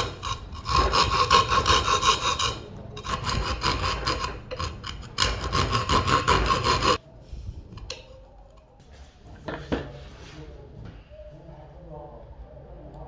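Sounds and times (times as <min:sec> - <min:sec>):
file rasping: 0:00.0 - 0:07.0
hand saw rasping through plywood: 0:00.0 - 0:07.0.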